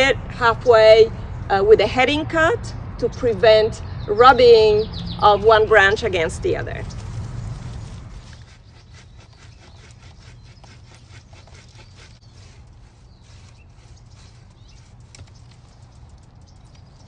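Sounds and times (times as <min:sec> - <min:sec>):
hand saw cutting branch: 0:08.1 - 0:15.2.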